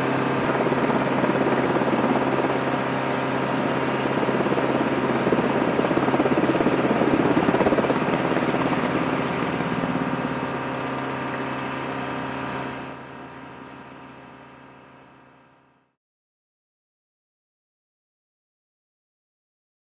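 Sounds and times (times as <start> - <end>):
helicopter engines whining: 0.0 - 14.6
helicopter rotor beat: 0.0 - 15.4.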